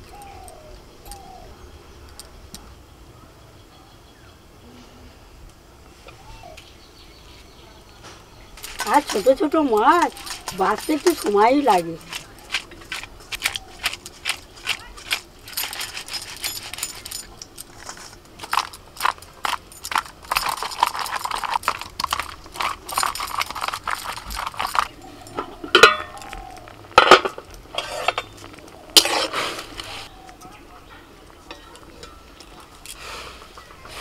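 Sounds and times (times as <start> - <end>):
metal kitchenware clinking: 8.6 - 29.4, 31.4 - 33.0.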